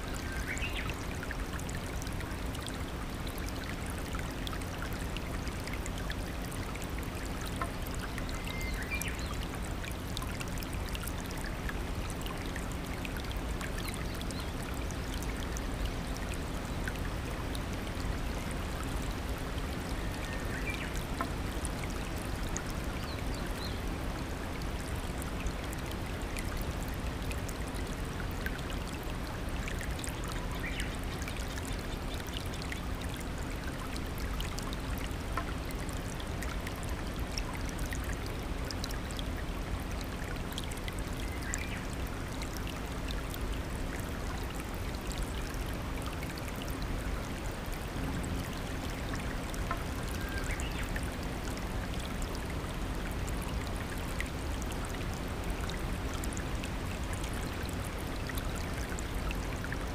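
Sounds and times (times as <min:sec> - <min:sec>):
stream rushing over stones: 0:45.7 - 0:59.9.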